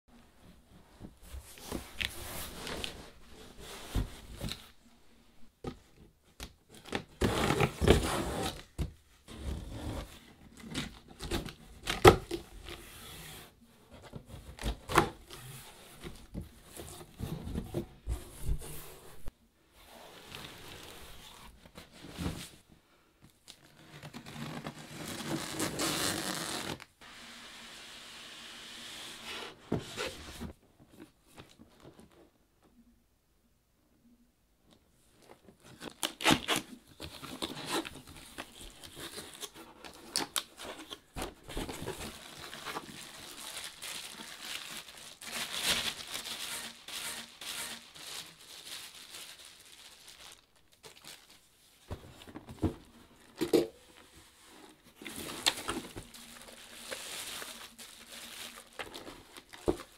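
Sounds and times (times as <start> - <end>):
packing tape tearing: 35.8 - 36.7, 42.5 - 51.1.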